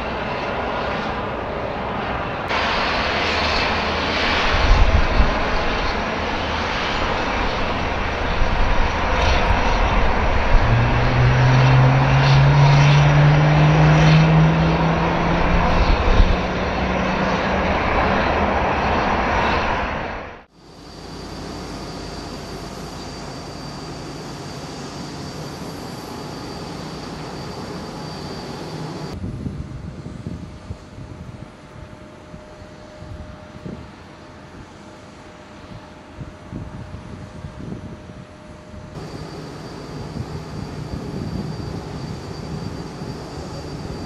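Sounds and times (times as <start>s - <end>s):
jet engines running: 0.0s - 44.0s.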